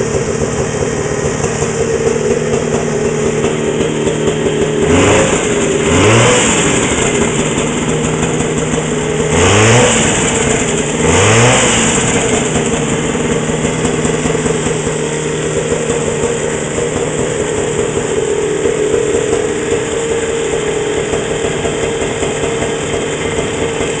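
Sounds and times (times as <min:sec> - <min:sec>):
snowmobile engine revving and idling: 0:00.0 - 0:24.0.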